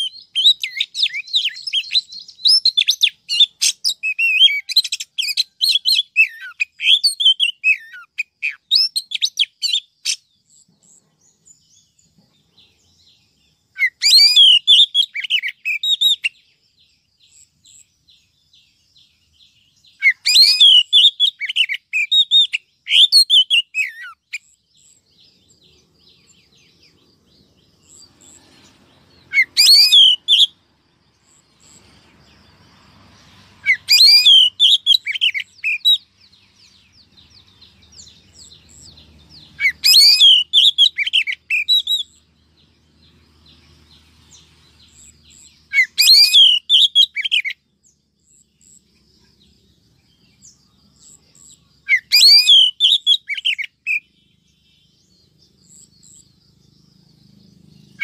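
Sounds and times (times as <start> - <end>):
bird whistling and chattering: 0.0 - 10.2, 13.8 - 16.4, 19.9 - 25.0, 29.2 - 30.6, 33.6 - 36.0, 38.0 - 42.2, 44.9 - 47.6, 51.4 - 54.2.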